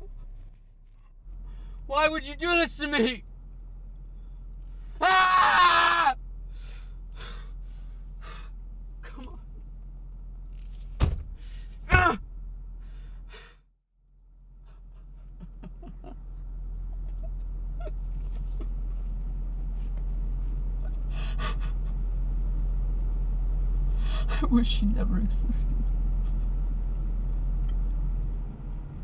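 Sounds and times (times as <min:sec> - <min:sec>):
low rumble: 0:00.0 - 0:05.0, 0:06.1 - 0:29.0
man crying out: 0:05.0 - 0:06.2
sharp thump: 0:11.0 - 0:12.2
man sobbing: 0:14.7 - 0:16.2, 0:20.8 - 0:22.0.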